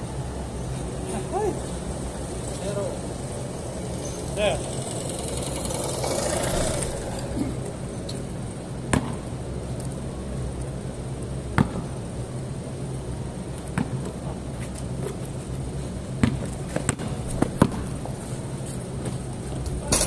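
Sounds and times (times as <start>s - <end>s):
steady low hum: 0.0s - 20.0s
basketball bouncing on concrete: 8.9s - 9.2s, 11.6s - 11.9s, 16.2s - 18.0s.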